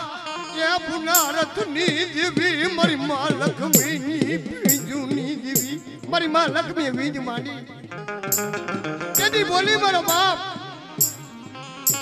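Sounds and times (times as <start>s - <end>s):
devotional folk music: 0.0s - 12.0s
drumming: 1.2s - 1.6s, 3.7s - 6.3s, 8.2s - 12.0s
percussive clashes: 1.2s - 1.6s, 3.8s - 6.0s, 8.3s - 10.4s, 11.0s - 12.0s.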